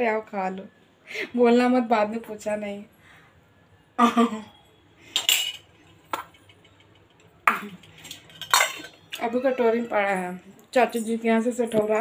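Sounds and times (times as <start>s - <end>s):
spoon clinking against a bowl: 5.2s - 9.3s.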